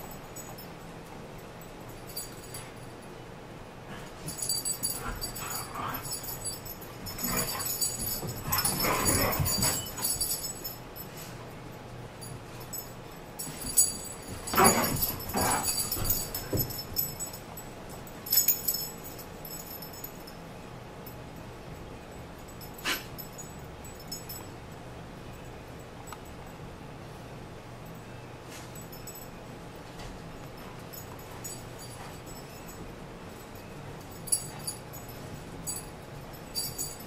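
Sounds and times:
dogs whining and playing: 1.5 - 21.2, 22.2 - 24.6, 28.3 - 37.0
high-pitched jingling: 4.2 - 11.3, 12.2 - 21.4, 22.0 - 24.7, 30.3 - 37.0.

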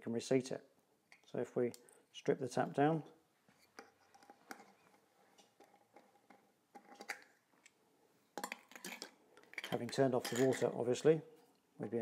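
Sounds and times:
metal tools clattering in basin: 8.4 - 11.0.

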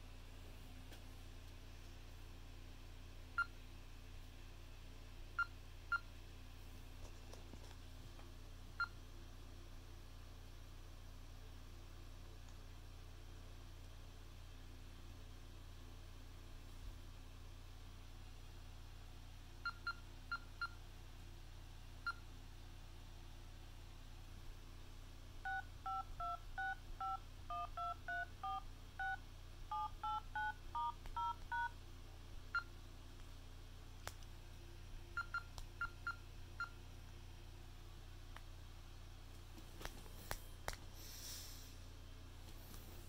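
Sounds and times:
two-tone keypad beeps: 25.5 - 31.7.

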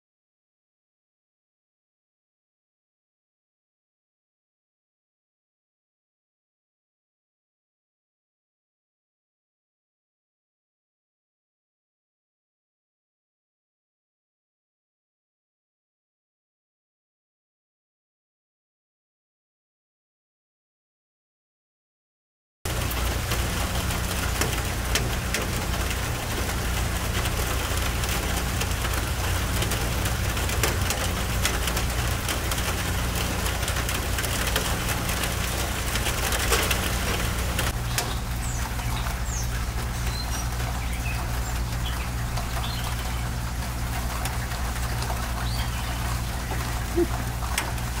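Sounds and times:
steady rain: 22.7 - 48.0.

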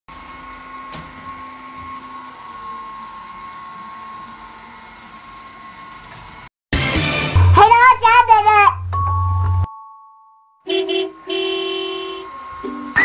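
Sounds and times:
robot vacuum cleaner motor whining: 0.1 - 6.5.

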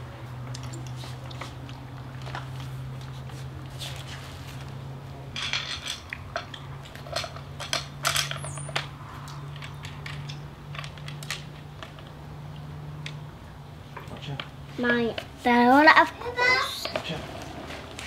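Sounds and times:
metal parts clinking: 7.0 - 8.9.

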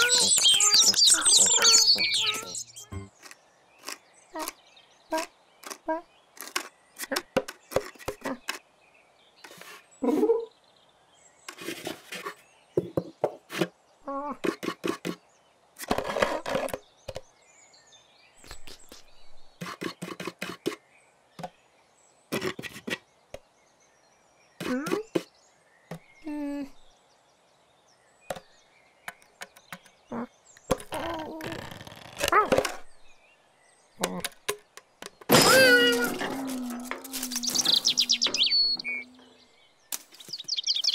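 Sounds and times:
cartoon knocks and scratches: 0.0 - 8.6, 11.5 - 13.8, 14.4 - 15.2, 18.5 - 20.8, 22.3 - 23.0, 24.6 - 25.3
cartoon cat grunts and mews: 35.4 - 37.5.

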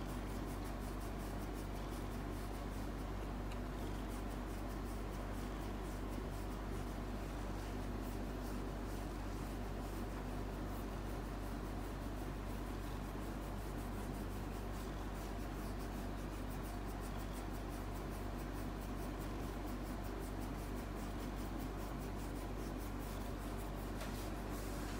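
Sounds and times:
fingers rubbing through fur: 0.0 - 24.9
cat purring: 0.3 - 10.9.

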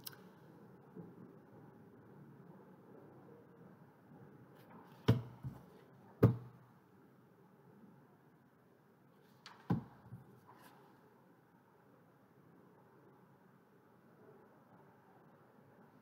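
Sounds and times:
faint room noise: 0.0 - 16.0
sharp knocks: 6.2 - 6.6.

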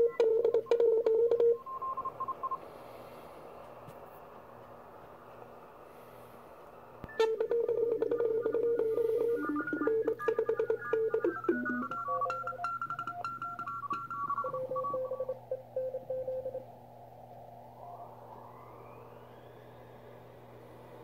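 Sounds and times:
faint radio hiss: 0.0 - 21.0
morse code tones: 7.1 - 16.7.

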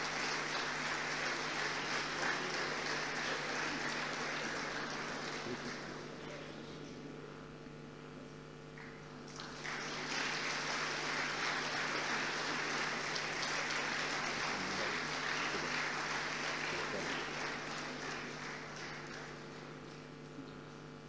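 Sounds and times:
audience applauding: 0.0 - 6.6, 8.8 - 20.8.

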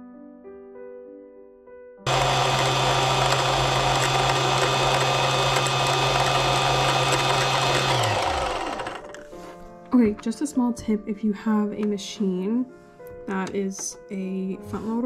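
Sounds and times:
sewing machine motor humming: 2.1 - 9.3.

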